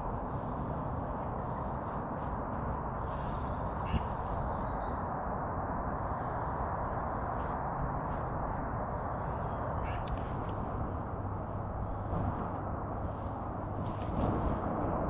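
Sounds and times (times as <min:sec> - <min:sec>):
outdoor background rush: 0:00.0 - 0:15.0
small bird high call: 0:03.7 - 0:05.0.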